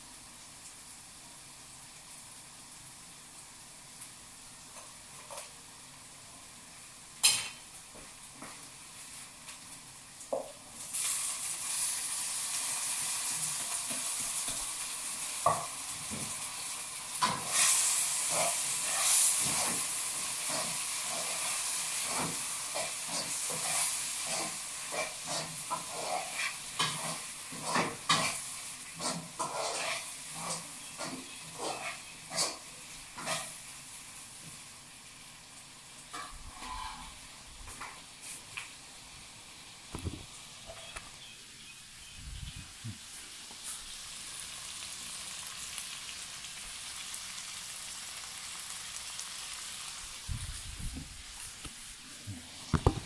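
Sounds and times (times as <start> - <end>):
food sizzling in frying pan: 0.0 - 42.0, 42.7 - 53.0
utensil scraping pan: 29.0 - 33.6, 36.2 - 37.2.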